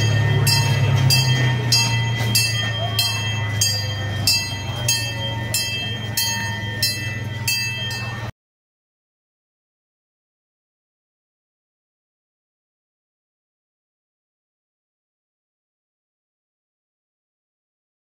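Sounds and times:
low engine hum: 0:00.0 - 0:08.3.

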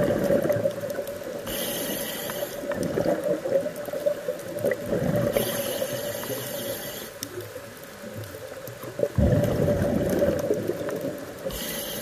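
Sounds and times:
underwater exhaled bubbles gurgling: 0:00.0 - 0:12.0
regulator inhale hiss: 0:01.3 - 0:02.8, 0:05.2 - 0:07.4, 0:11.4 - 0:12.0.

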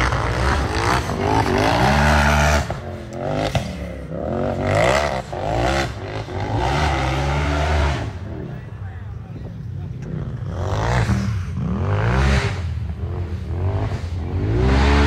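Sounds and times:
buggy engine revving: 0:00.0 - 0:15.0.

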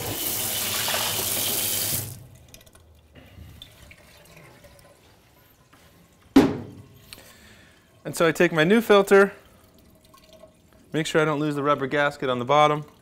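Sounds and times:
tap water running into sink: 0:00.0 - 0:02.8.

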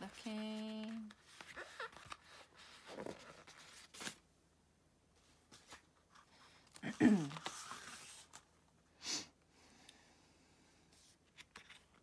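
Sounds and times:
paper rustling: 0:00.0 - 0:04.2, 0:05.2 - 0:08.5, 0:11.0 - 0:12.0
photobook pages turning: 0:00.1 - 0:04.2, 0:05.5 - 0:08.6, 0:11.0 - 0:12.0.

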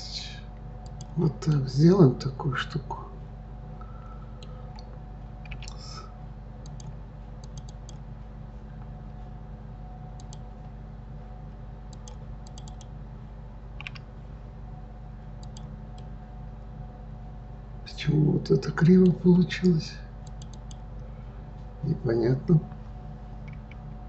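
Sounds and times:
steady low hum: 0:00.0 - 0:24.0
mouse and keyboard clicks: 0:05.4 - 0:05.8, 0:06.6 - 0:08.0, 0:11.9 - 0:12.9, 0:13.8 - 0:14.0, 0:15.4 - 0:16.1, 0:20.3 - 0:20.8.

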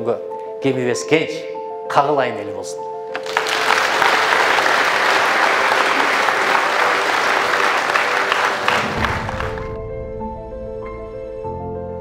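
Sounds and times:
audience applauding: 0:03.2 - 0:09.8.

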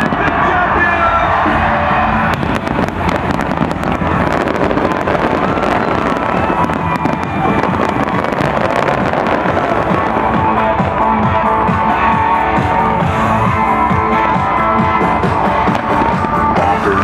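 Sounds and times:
firework explosions: 0:02.2 - 0:12.0, 0:14.4 - 0:17.0.

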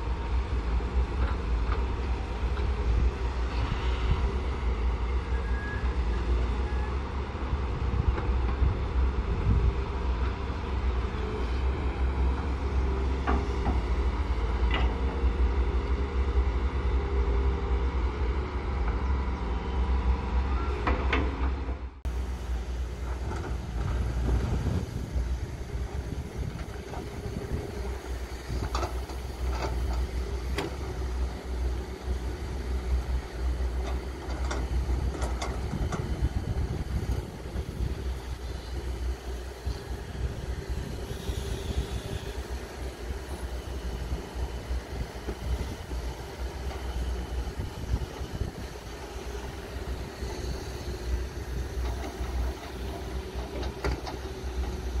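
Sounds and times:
excavator diesel engines: 0:00.0 - 0:55.0.

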